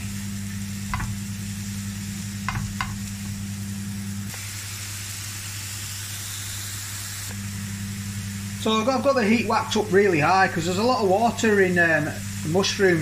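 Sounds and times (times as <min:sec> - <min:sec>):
mushrooms sizzling in frying pan: 0:00.0 - 0:13.0
spatula tapping and scraping: 0:00.9 - 0:01.2, 0:02.5 - 0:03.0.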